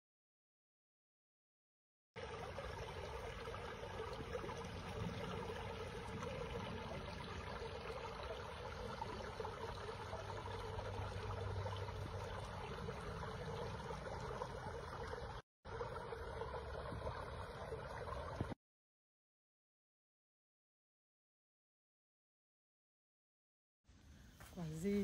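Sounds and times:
creek water babbling over rocks: 2.2 - 18.6.

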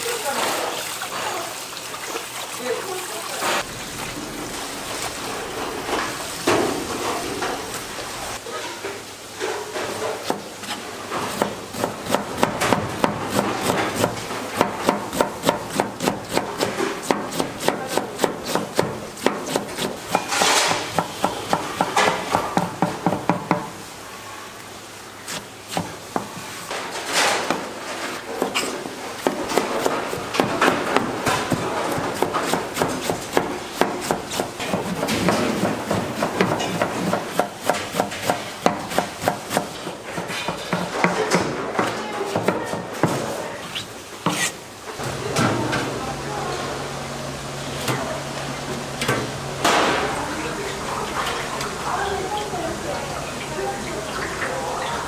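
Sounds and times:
knife chopping on cutting board: 10.2 - 23.7, 28.4 - 41.2.

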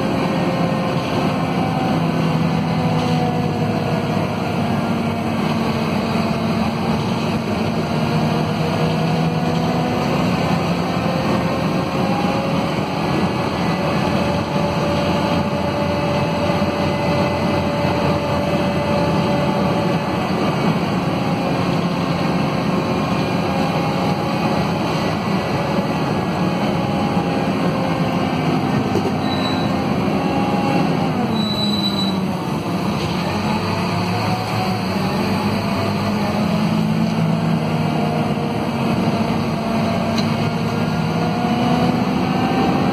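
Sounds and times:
bus diesel engine rumble: 0.0 - 42.9.

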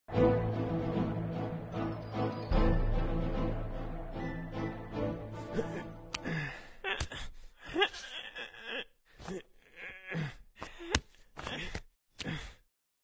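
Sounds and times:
music: 0.1 - 6.6
cartoon character grunts and groans: 5.5 - 12.7.

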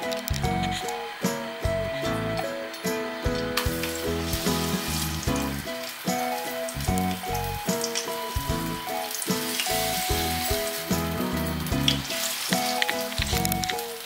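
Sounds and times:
background music: 0.0 - 14.0
paste sizzling in hot oil: 3.6 - 14.0.

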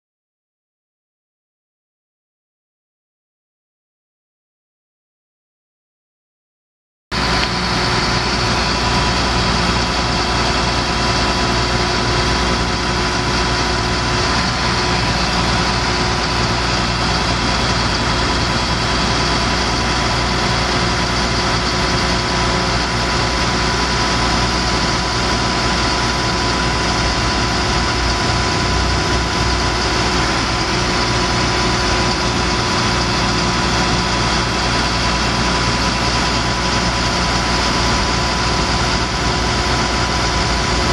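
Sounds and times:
high whine: 7.1 - 40.9
diesel truck engine idling: 7.2 - 40.9.

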